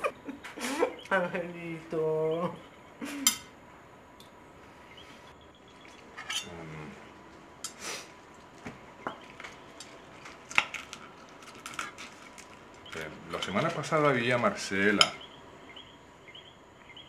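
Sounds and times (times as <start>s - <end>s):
cutlery clinking on plates: 6.2s - 6.6s.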